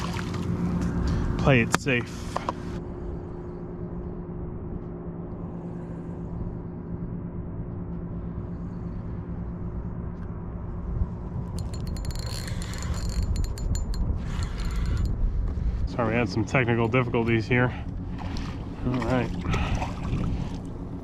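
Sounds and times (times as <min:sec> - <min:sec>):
faint steady hum: 0:00.0 - 0:21.0
low wind rumble: 0:00.0 - 0:21.0.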